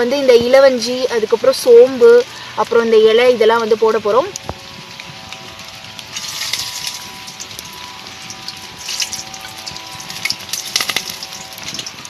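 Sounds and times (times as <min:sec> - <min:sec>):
spices sizzling in hot oil: 0:04.2 - 0:12.0.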